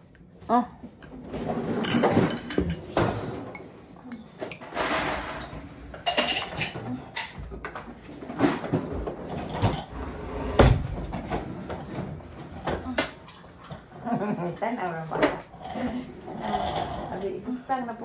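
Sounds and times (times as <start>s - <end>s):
tableware clattering and clinking: 1.2s - 9.9s.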